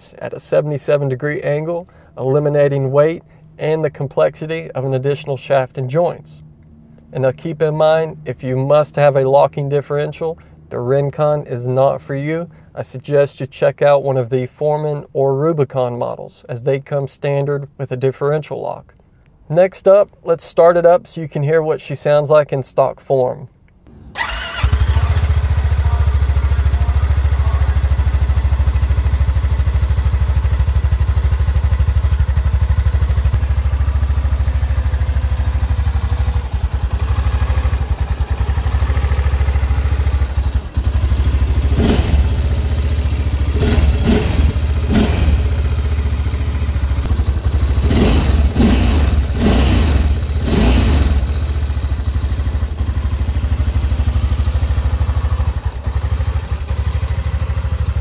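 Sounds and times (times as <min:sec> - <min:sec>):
short engine bursts: 0:23.9 - 0:31.1, 0:34.1 - 0:54.1
atv engine idling: 0:23.9 - 0:58.0.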